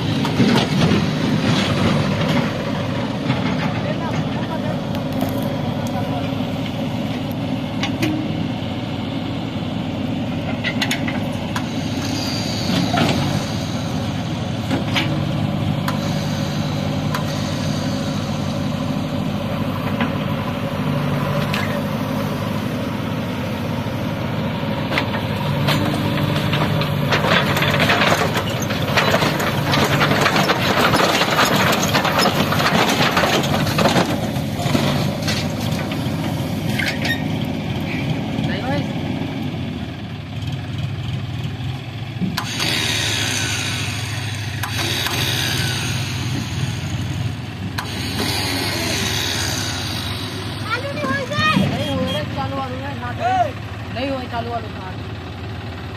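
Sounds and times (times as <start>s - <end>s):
diesel engine running: 0.0s - 55.9s
metal clanks: 24.9s - 37.3s.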